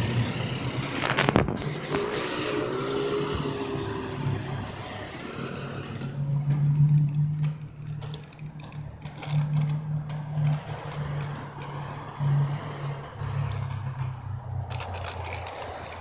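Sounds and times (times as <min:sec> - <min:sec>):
car and scooter engines humming: 0:00.0 - 0:16.0
bicycle rattling clicks: 0:04.4 - 0:16.0.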